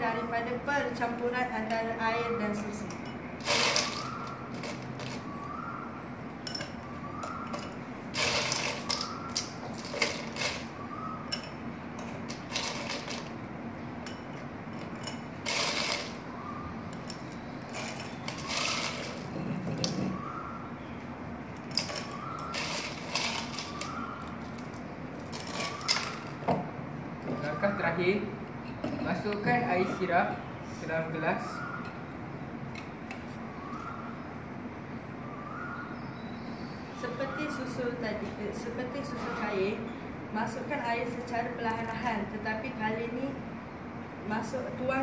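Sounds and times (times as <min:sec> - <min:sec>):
ice cubes clinking into glass: 0:03.4 - 0:05.2, 0:14.8 - 0:16.2, 0:21.7 - 0:24.0.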